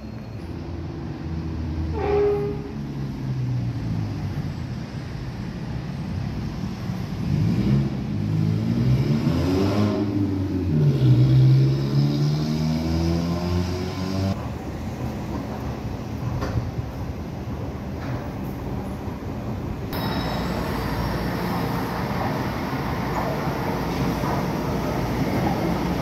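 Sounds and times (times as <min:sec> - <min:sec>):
train traction motors whining: 0:20.0 - 0:26.0.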